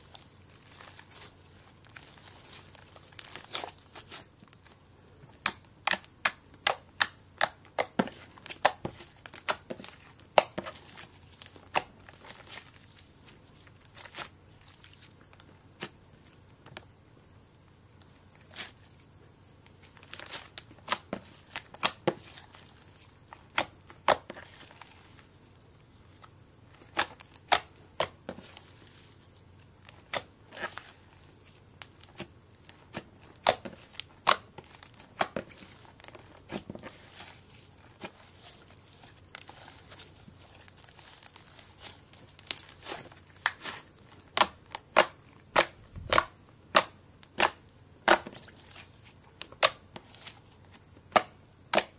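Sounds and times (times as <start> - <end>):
slime popping and crackling: 31.8 - 50.3.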